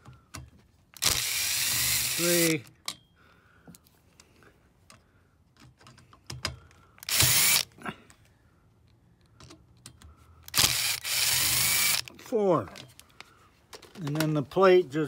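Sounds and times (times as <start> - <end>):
cordless drill spinning: 1.0 - 2.7, 7.0 - 7.7, 10.5 - 12.2
handling noises: 12.6 - 14.9.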